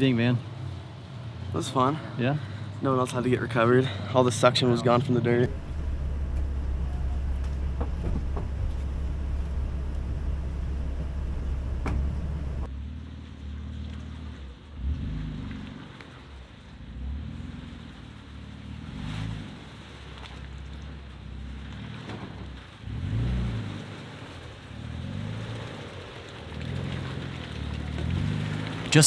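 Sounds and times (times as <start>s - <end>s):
vehicle engines running: 0.0s - 29.0s
engine revving up and down: 5.4s - 16.0s, 16.8s - 19.9s, 21.5s - 26.0s.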